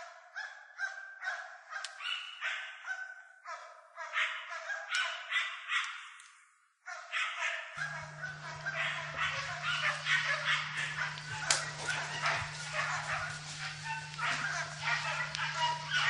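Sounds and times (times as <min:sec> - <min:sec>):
dogs barking and baying: 0:00.0 - 0:06.2, 0:06.8 - 0:16.0
steady low hum: 0:07.8 - 0:16.0.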